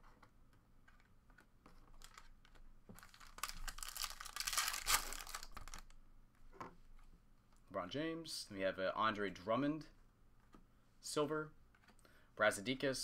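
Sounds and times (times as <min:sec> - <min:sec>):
foil wrapper tearing and crinkling: 0:03.0 - 0:05.9.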